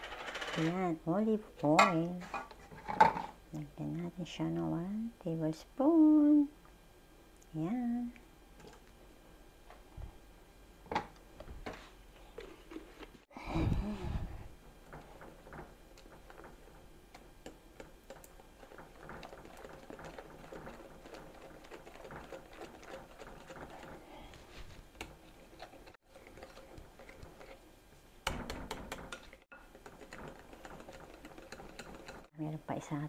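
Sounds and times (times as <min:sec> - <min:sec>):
whisk scraping glass bowl: 0:17.8 - 0:24.1, 0:25.1 - 0:27.6, 0:29.0 - 0:32.3.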